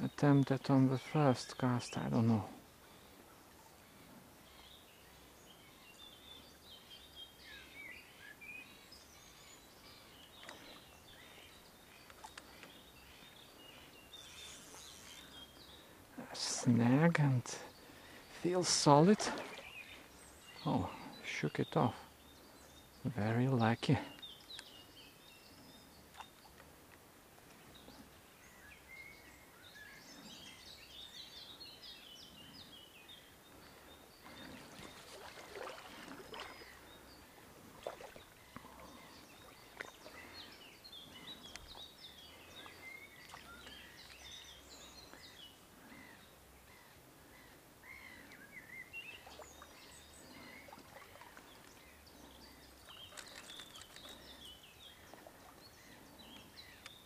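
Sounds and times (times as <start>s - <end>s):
birds chirping and singing: 27.6s - 57.0s
handling clicks and rustles: 53.0s - 54.3s.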